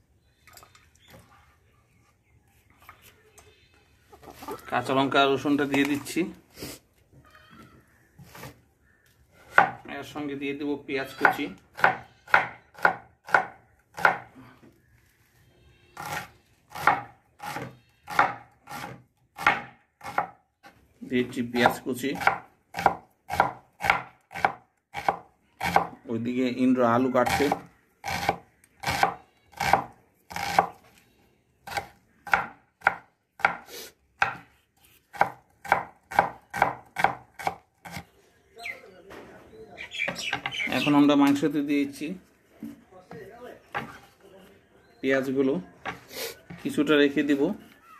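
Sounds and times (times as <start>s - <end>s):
knife chopping onion on wooden board: 9.4s - 9.8s, 11.2s - 14.3s, 16.0s - 20.4s, 21.6s - 26.0s, 27.2s - 30.8s, 31.6s - 38.0s.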